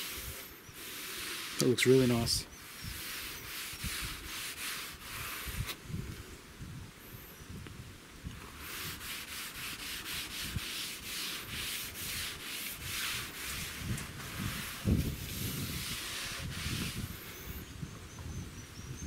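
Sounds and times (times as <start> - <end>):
cloth rag rubbing wood: 0.0 - 5.8, 8.4 - 17.6.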